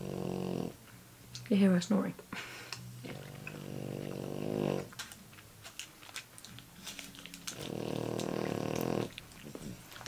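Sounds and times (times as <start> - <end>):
dog snoring: 0.0 - 0.8, 3.0 - 4.9, 7.5 - 9.8.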